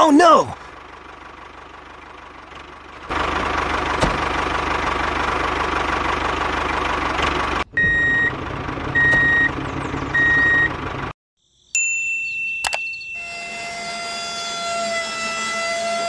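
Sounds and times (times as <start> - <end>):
reversing beeps: 7.8 - 8.3, 9.0 - 9.5, 10.1 - 10.7.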